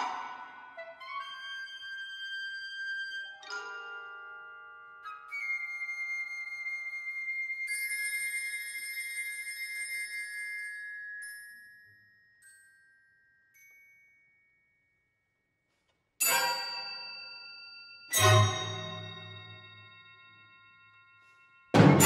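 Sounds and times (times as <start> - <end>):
bell-like ringing tones: 7.7 - 15.0, 16.2 - 22.0
loud sharp orchestral chords: 18.2 - 19.3, 21.8 - 22.0.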